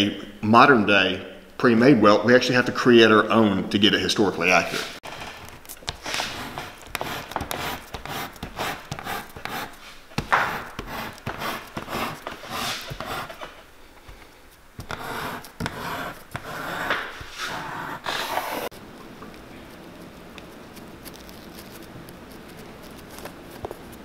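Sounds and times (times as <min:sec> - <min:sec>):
hand tool scraping leather: 0:04.7 - 0:18.7, 0:19.6 - 0:24.0.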